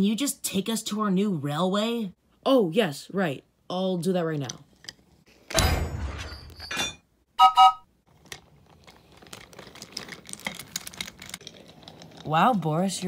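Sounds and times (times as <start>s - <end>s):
toy train whistle toots: 7.4s - 7.8s
wooden toy train rolling on track: 8.1s - 13.0s.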